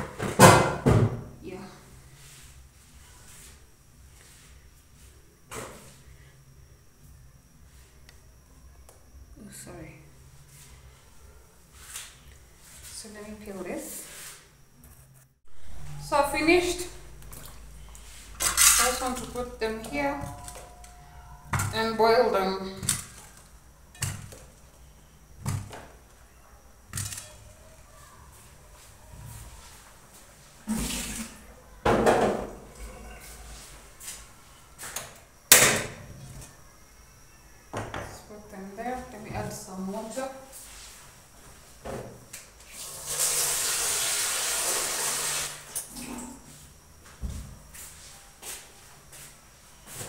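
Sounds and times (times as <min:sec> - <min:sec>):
water running: 0:42.7 - 0:46.2.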